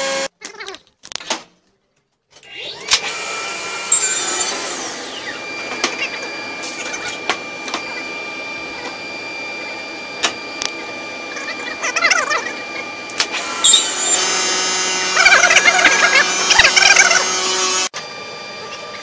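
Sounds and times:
boring machine whining: 0:13.4 - 0:15.3.

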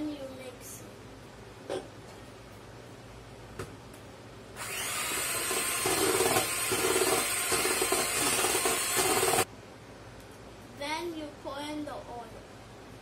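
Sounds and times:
electric hand mixer running: 0:04.6 - 0:09.5
beaters mixing in steel bowl: 0:05.0 - 0:09.5.

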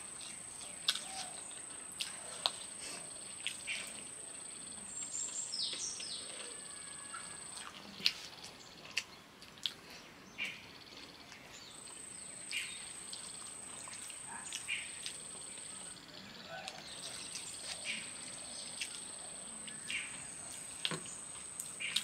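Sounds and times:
eating with hands clicks and smacks: 0:00.0 - 0:22.0.

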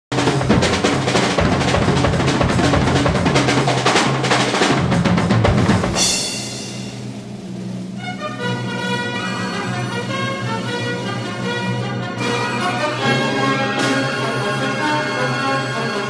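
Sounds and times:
drum kit played fast: 0:00.1 - 0:11.1.

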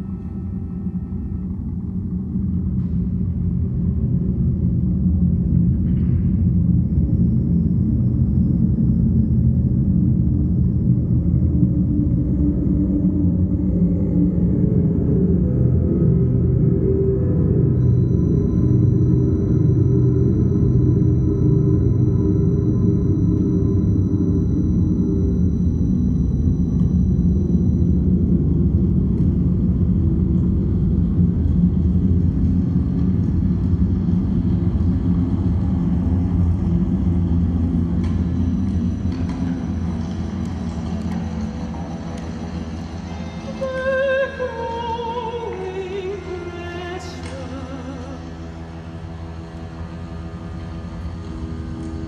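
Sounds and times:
low rumbling drone: 0:00.0 - 0:52.0
held deep tones: 0:12.5 - 0:30.9.

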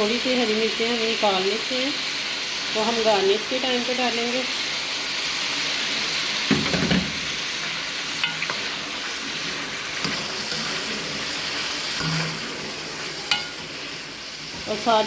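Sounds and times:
food sizzling in hot oil: 0:00.0 - 0:15.0
utensil clinking against pan: 0:13.3 - 0:13.6.

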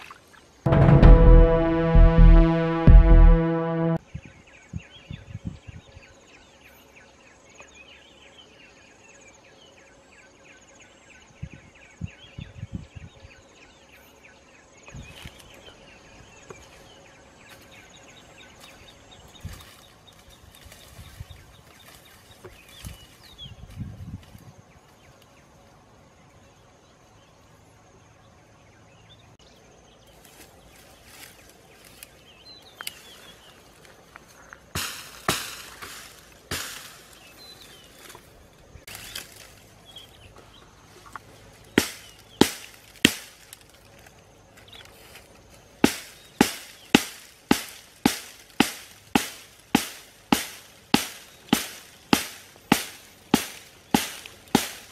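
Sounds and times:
footsteps in dry grass: 0:16.5 - 0:25.2, 0:30.0 - 0:54.9.

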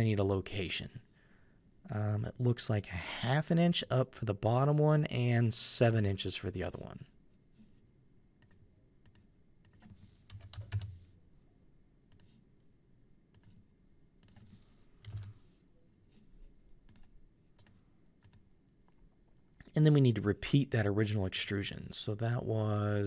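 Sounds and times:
keyboard and mouse clicks: 0:08.4 - 0:11.0, 0:12.1 - 0:12.4, 0:13.3 - 0:13.6, 0:14.2 - 0:15.4, 0:16.8 - 0:19.8.

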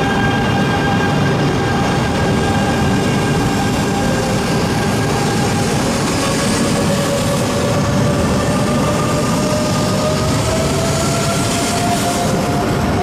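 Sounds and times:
train running gear rumble: 0:00.0 - 0:13.0.

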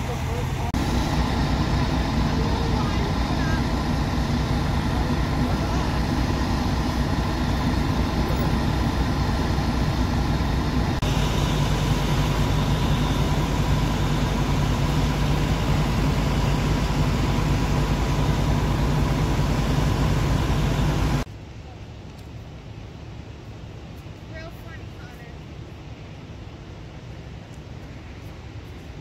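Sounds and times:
diesel truck engines idling: 0:00.0 - 0:21.3.

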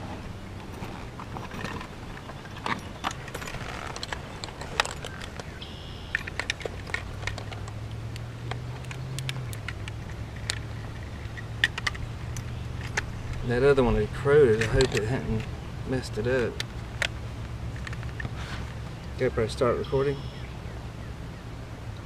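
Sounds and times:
high chirp: 0:05.5 - 0:06.2.

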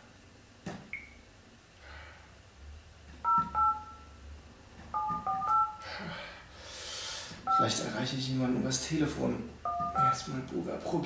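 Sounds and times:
telephone keypad beeps: 0:03.2 - 0:04.1, 0:05.0 - 0:05.8, 0:07.5 - 0:07.8, 0:09.6 - 0:10.3.

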